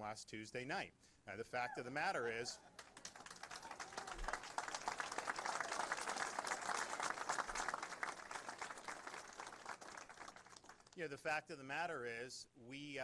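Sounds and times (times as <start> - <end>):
audience applause: 2.8 - 10.9.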